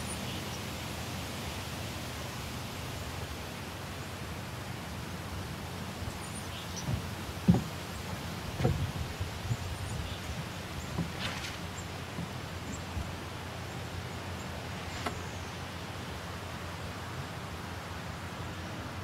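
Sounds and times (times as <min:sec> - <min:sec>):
outdoor background hiss: 0:00.0 - 0:19.0
faint rustle: 0:05.8 - 0:15.8
dull low thumps: 0:06.7 - 0:11.2.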